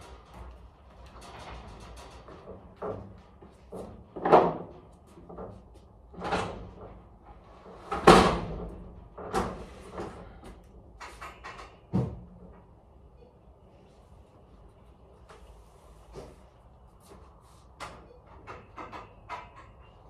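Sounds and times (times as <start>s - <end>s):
freight knocking and banging: 1.1s - 10.2s.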